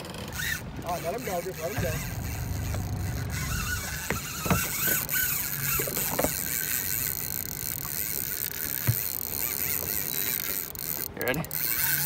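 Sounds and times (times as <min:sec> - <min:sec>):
water noise: 0:00.0 - 0:12.0
wind: 0:00.0 - 0:12.0
faint squeaks: 0:00.2 - 0:06.7
short knocks: 0:01.7 - 0:05.2.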